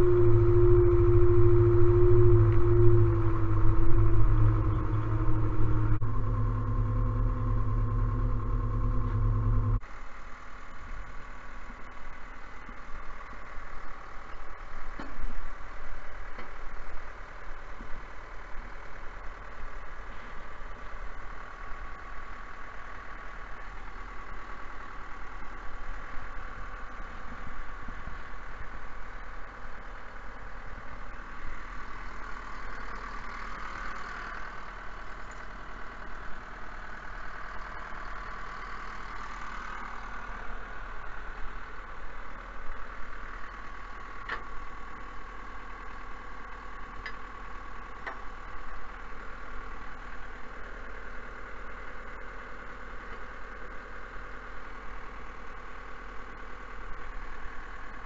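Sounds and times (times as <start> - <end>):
steady high tone: 0.0 - 9.8
vehicle engine idling: 0.0 - 58.0.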